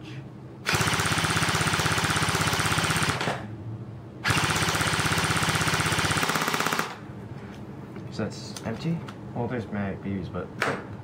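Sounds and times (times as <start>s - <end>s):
airsoft rifle firing full auto: 0.6s - 3.4s, 4.2s - 7.0s.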